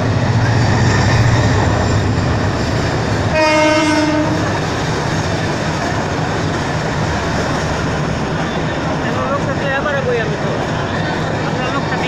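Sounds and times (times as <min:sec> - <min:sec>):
moving train noise: 0:00.0 - 0:12.0
train horn: 0:03.3 - 0:04.5.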